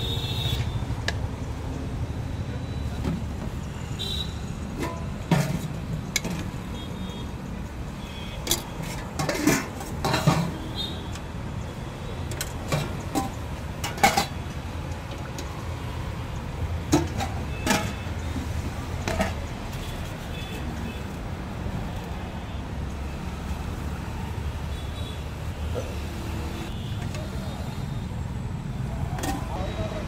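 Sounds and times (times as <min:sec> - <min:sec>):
road traffic hum: 0:00.0 - 0:30.0
steel ladles clinking on pots: 0:04.8 - 0:06.6, 0:08.4 - 0:10.7, 0:12.3 - 0:15.4, 0:16.9 - 0:18.2, 0:29.1 - 0:30.0.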